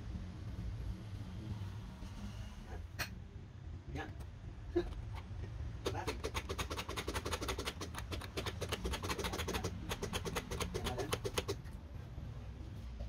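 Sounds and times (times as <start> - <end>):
low steady hum: 0.0 - 13.0
fast sharp clicks: 5.0 - 11.7.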